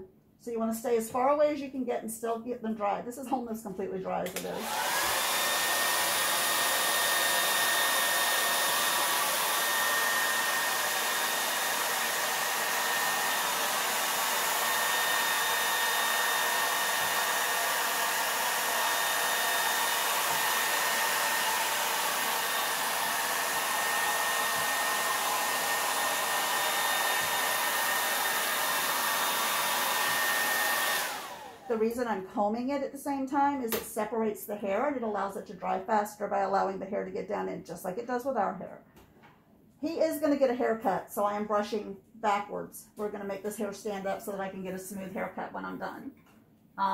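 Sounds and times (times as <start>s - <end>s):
hair dryer running: 4.2s - 32.2s.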